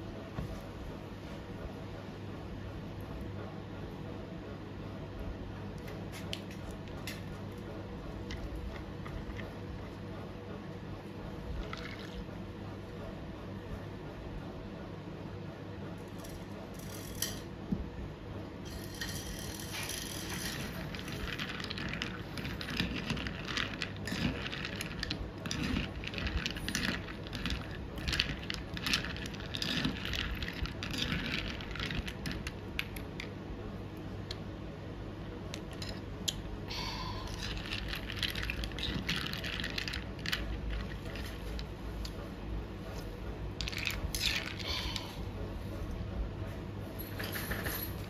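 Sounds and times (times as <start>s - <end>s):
steady low hum: 0.0s - 48.0s.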